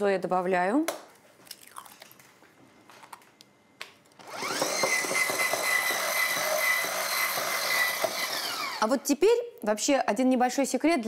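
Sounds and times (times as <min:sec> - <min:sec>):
immersion blender motor whine: 0:04.2 - 0:08.9.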